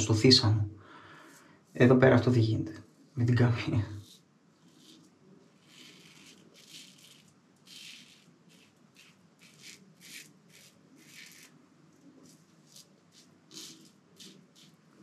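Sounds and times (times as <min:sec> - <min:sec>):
razor shaving strokes: 0:04.0 - 0:15.0.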